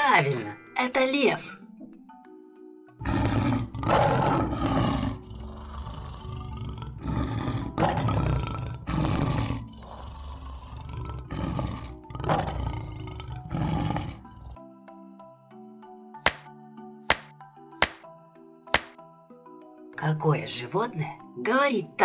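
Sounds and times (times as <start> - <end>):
lion roaring and grunting: 3.0 - 14.7.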